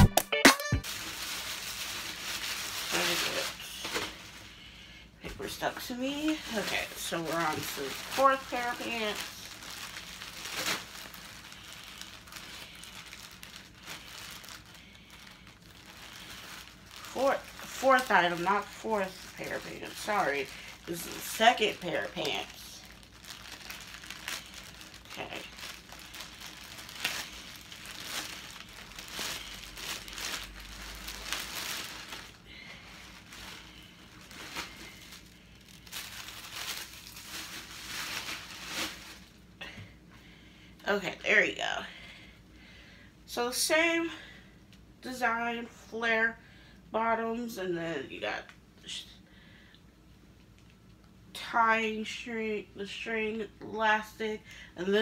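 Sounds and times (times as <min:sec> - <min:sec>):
plastic bag crinkling: 0:00.8 - 0:04.6, 0:05.3 - 0:39.5.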